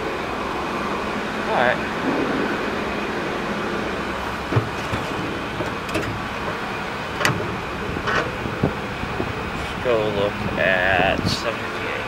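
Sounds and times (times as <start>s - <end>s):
factory machinery din: 0.6s - 9.9s.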